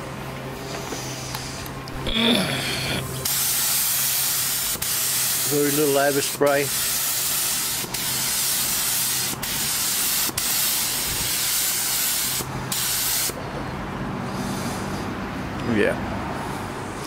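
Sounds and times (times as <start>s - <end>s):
paint spray gun hissing: 0.7s - 1.6s, 3.2s - 13.4s.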